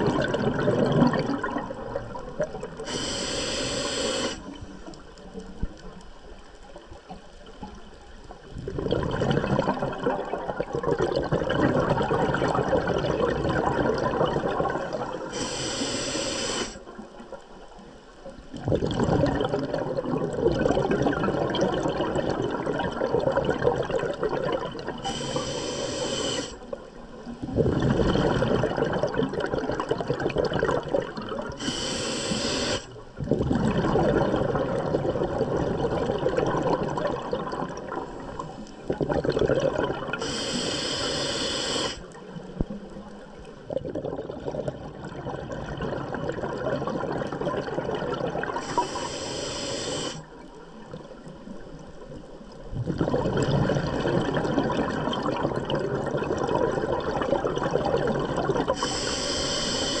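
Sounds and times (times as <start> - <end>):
gurgling exhaled bubbles: 0.0 - 5.8, 8.4 - 17.4, 18.3 - 60.0
hissing regulator inhale: 2.8 - 4.5, 15.3 - 16.8, 25.0 - 26.6, 31.6 - 33.0, 40.2 - 42.1, 48.6 - 50.3, 58.7 - 60.0.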